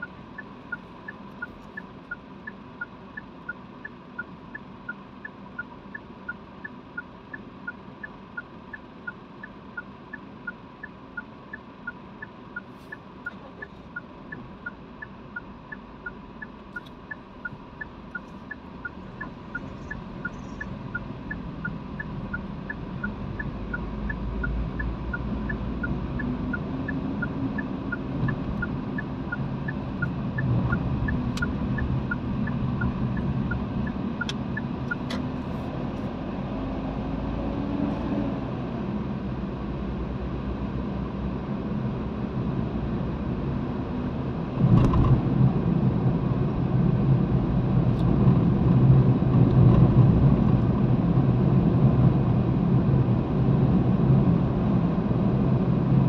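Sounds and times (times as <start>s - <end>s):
car engine and tyre rumble: 0.0s - 56.0s.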